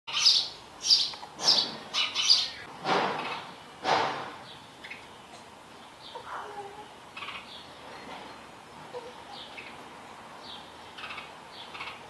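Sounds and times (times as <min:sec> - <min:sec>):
sparrow chirps: 0:00.1 - 0:03.5, 0:07.2 - 0:08.1, 0:10.4 - 0:12.0.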